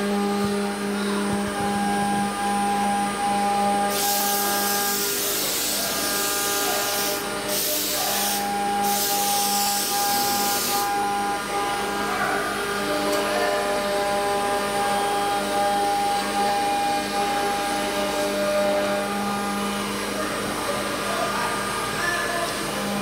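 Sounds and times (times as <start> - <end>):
router spindle whine: 0.0 - 23.0
hiss of bit cutting wood: 3.9 - 11.0.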